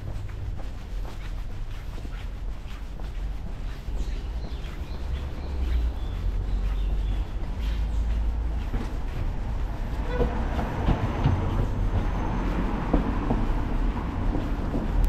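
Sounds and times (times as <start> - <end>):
heavy vehicle rumbling and clattering: 4.4 - 15.0.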